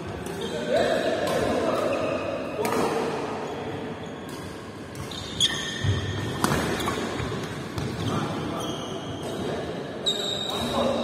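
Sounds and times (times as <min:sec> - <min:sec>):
shoes squeaking on court: 0:03.4 - 0:09.4
racket hitting shuttlecock: 0:06.2 - 0:07.9.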